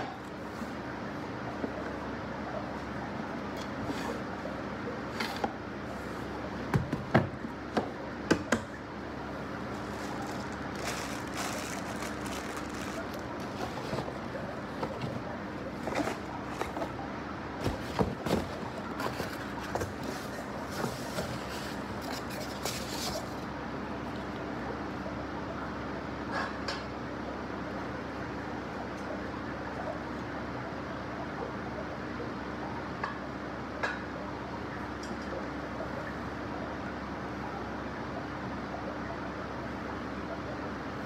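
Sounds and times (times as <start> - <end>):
steady background hum: 0.0 - 41.0
rustling: 9.5 - 17.0.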